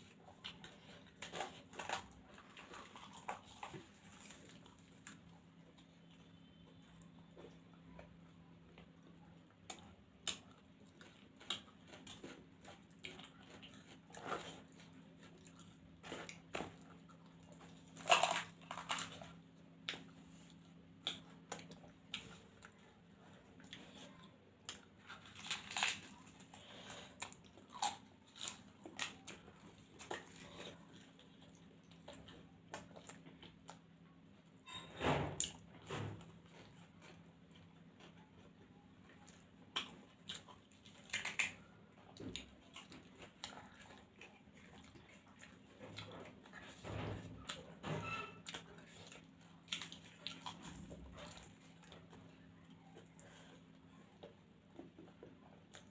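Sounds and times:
wet chewing and lip smacks: 48.4s - 55.9s.

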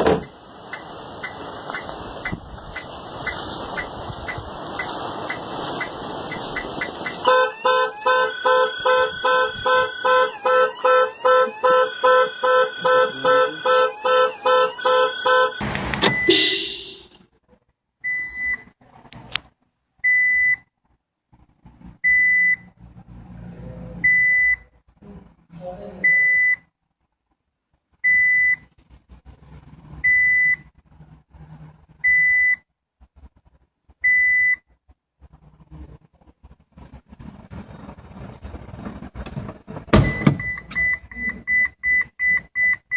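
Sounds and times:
car alarm high beep: 7.0s - 17.1s, 40.0s - 42.9s
car alarm horn honking in pulses: 7.2s - 17.1s.

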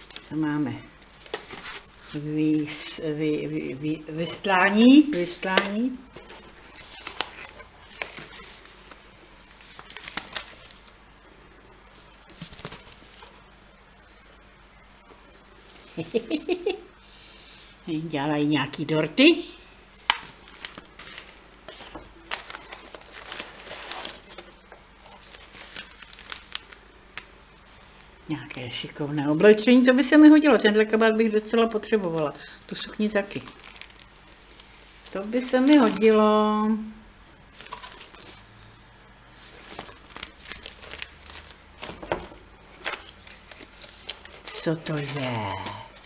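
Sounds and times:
paper rustling and crinkling: 1.0s - 2.3s, 4.3s - 11.0s, 11.9s - 13.4s, 20.0s - 27.3s, 33.1s - 36.2s, 37.5s - 38.5s, 39.3s - 46.0s.

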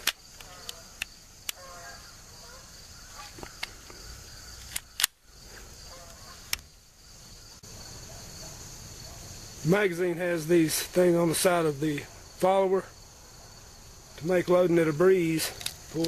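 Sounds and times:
pistol slide clicking: 4.6s - 5.2s.

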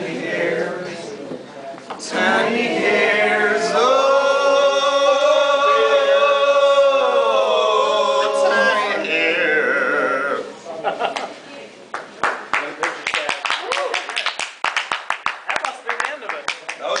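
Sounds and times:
acoustic band music: 2.0s - 10.5s
voices singing held note: 2.0s - 10.6s.

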